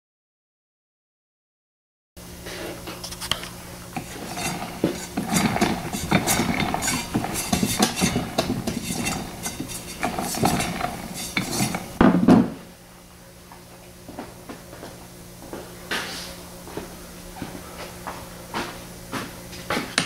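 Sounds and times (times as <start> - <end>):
gears clicking and rattling: 4.0 - 12.0
heavy clunk: 4.0 - 12.6.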